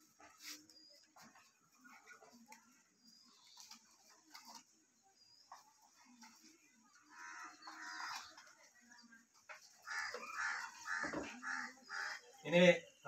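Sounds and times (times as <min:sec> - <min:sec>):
chickens clucking: 0:05.4 - 0:12.4.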